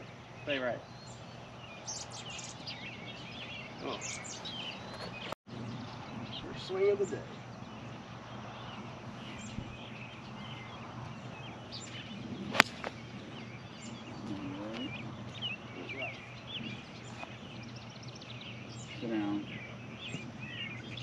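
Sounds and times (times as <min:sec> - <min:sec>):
birds chirping: 0:00.0 - 0:21.0
golf club striking ball: 0:12.5 - 0:13.1.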